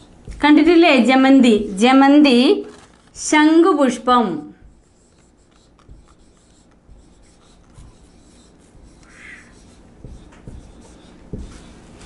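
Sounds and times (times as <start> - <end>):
marker rubbing on whiteboard: 0.0 - 1.0, 4.2 - 12.0
marker high-pitched scrape: 4.6 - 12.0
soft taps: 10.0 - 11.7.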